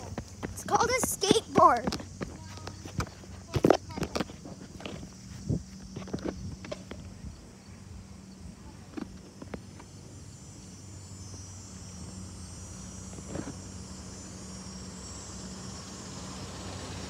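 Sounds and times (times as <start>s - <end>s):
high insect buzz: 0.0s - 17.0s
pickup truck engine humming: 9.3s - 17.0s.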